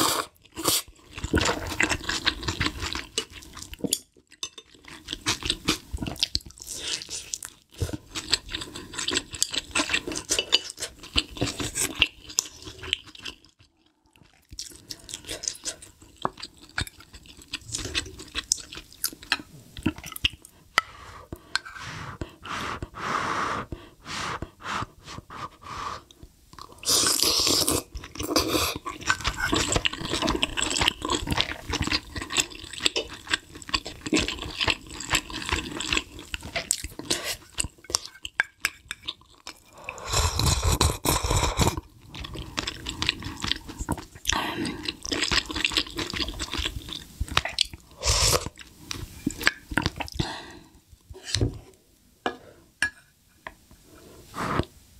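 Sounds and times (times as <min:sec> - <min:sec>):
wet chewing and mouth smacks: 0:05.0 - 0:20.6.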